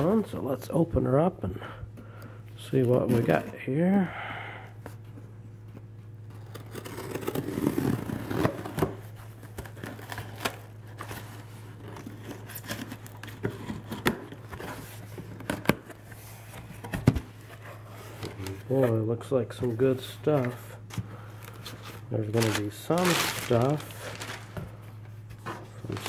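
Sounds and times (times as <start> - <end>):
steady low hum: 0.0 - 26.0
cardboard scraping and rustling: 2.8 - 3.6, 6.3 - 19.0, 19.7 - 26.0.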